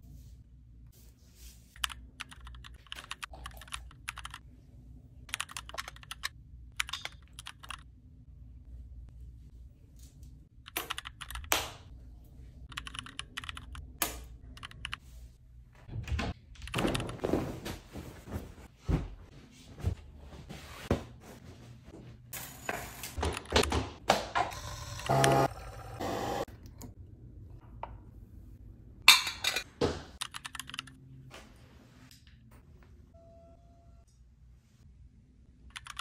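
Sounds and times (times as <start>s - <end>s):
bedding rustling: 16.8s - 21.9s.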